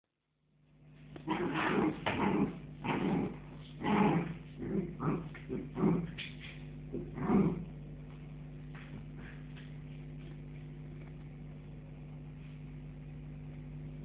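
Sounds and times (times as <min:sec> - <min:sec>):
dog growling and whining: 0:01.2 - 0:06.3, 0:06.9 - 0:07.7.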